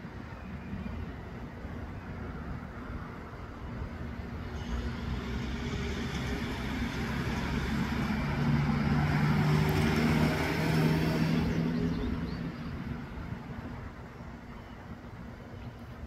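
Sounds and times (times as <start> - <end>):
motor vehicle passing by: 4.6 - 13.3.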